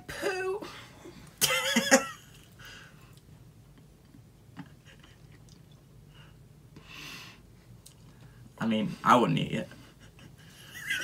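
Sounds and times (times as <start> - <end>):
soft chewing: 4.0 - 5.9.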